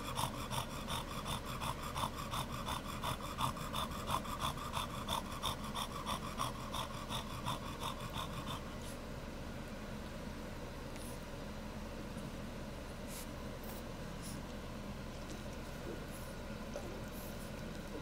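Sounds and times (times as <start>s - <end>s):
dog panting hard and fast: 0.0s - 9.0s.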